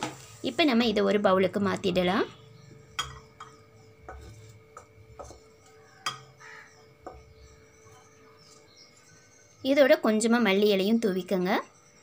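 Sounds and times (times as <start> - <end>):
metal spatula scraping a pan: 3.1 - 6.6.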